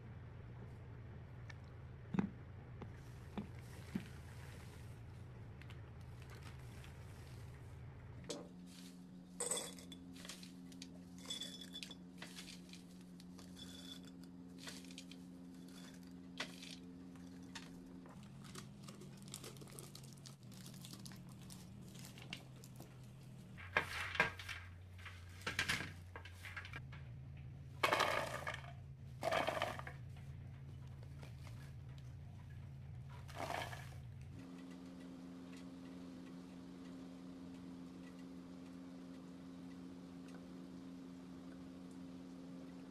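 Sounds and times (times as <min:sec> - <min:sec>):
faint steady hum: 0:00.0 - 0:42.9
peanuts poured into plastic bowl: 0:27.8 - 0:28.6, 0:29.2 - 0:29.9, 0:33.3 - 0:33.9
peanuts rattling on metal tray: 0:27.8 - 0:29.9, 0:33.3 - 0:33.9.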